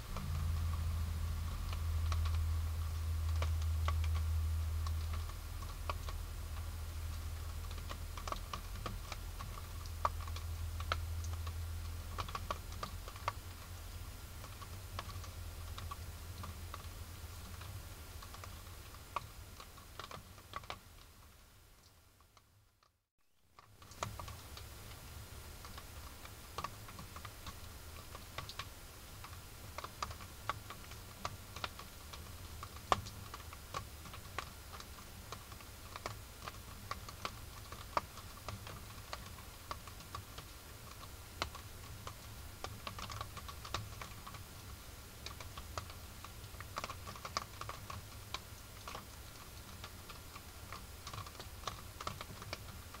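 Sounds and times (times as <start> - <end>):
camera low hum and hiss: 0.0 - 22.4
animals clicking and scratching: 0.1 - 20.8, 25.6 - 44.5, 45.2 - 53.0.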